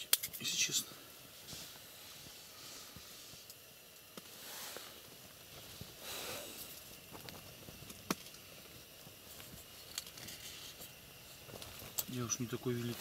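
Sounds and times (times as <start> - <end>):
soft breathy swells: 0.8 - 3.5, 4.3 - 6.8.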